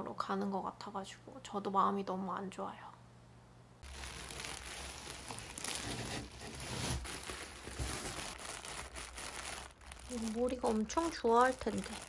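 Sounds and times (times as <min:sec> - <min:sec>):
plastic wrapping crinkling: 0:03.8 - 0:12.0.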